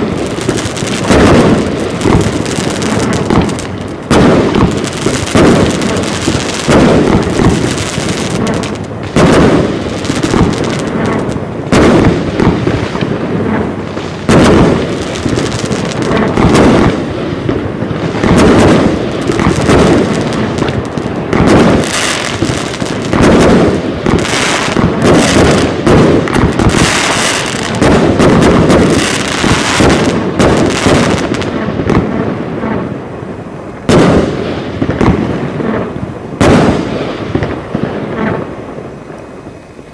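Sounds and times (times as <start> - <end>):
fireworks barrage: 0.0 - 39.9
sharp firework report: 0.0 - 39.9.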